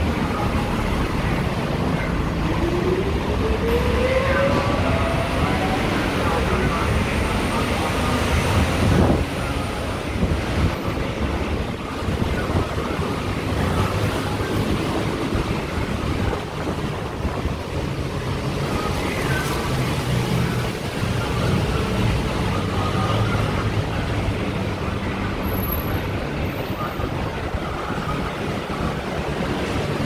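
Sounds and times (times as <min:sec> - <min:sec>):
passing vehicles rushing: 0:00.0 - 0:30.0.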